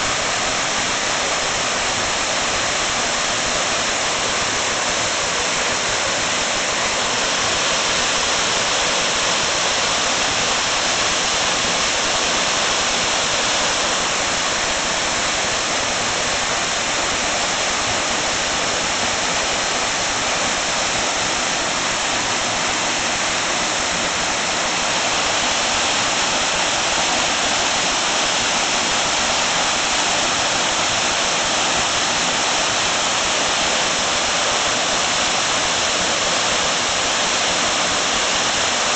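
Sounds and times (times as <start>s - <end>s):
waterfall rushing: 0.0s - 38.9s.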